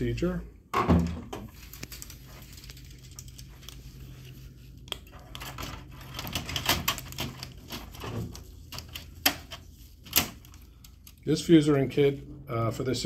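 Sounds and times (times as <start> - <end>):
low steady hum: 0.0 - 13.0
printer parts clicking and knocking: 5.3 - 10.6.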